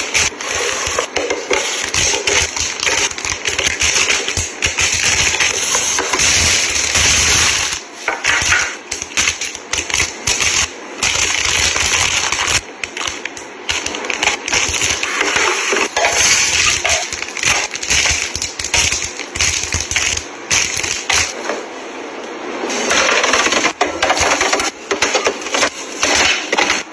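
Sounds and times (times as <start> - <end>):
plastic wrappers crinkling: 16.0 - 21.3.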